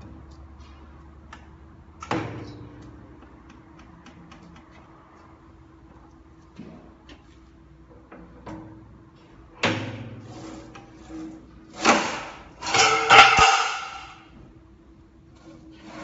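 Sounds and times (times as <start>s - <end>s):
metal shear scraping steel: 10.3s - 14.3s.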